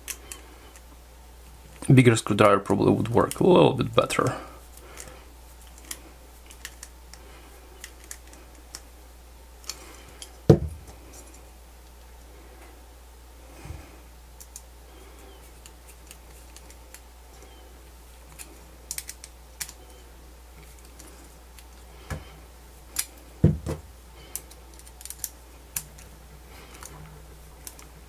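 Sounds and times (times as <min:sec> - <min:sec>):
knock on plastic: 0:10.5 - 0:10.8, 0:23.4 - 0:23.8.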